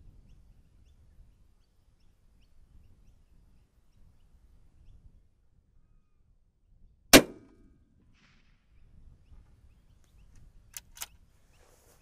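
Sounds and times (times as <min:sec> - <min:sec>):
rifle shot crack: 0:07.1 - 0:08.4
light clicks: 0:10.0 - 0:11.2.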